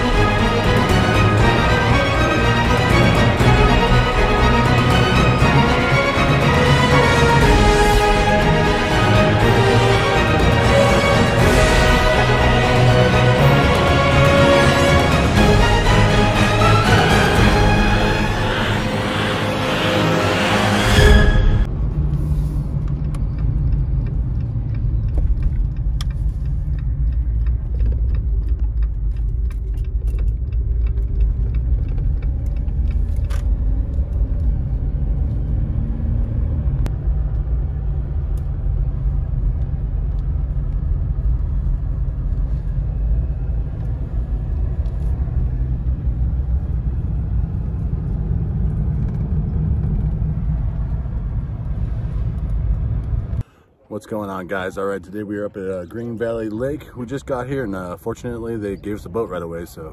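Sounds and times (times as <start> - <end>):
road and engine rumble in car: 21.6 - 53.5.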